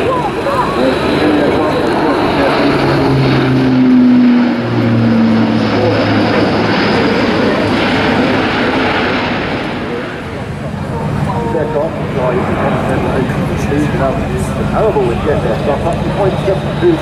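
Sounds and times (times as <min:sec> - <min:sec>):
turboprop aircraft droning overhead: 0:00.0 - 0:17.0.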